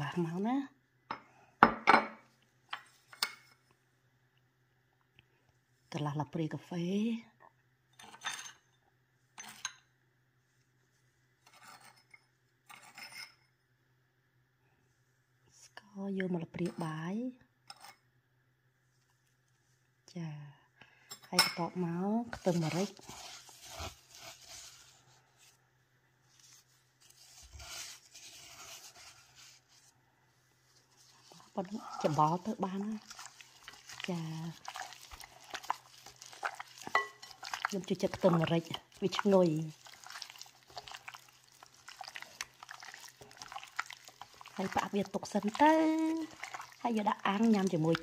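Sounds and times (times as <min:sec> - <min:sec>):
metal spoon scraping glass bowls: 0:35.3 - 0:38.3.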